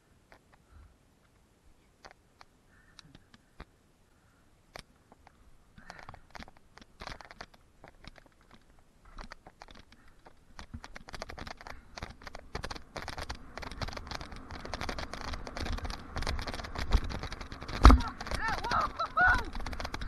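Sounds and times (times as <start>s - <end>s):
bike clicking and rattling: 4.7s - 20.0s
bike tyres crunching on gravel: 10.9s - 20.0s
wind rumble on microphone: 13.1s - 20.0s.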